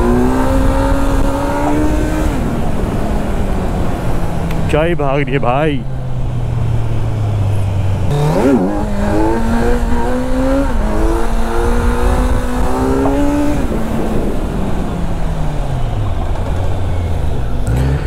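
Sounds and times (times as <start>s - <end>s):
motorcycle engine accelerating: 0.0s - 4.3s, 8.0s - 18.0s.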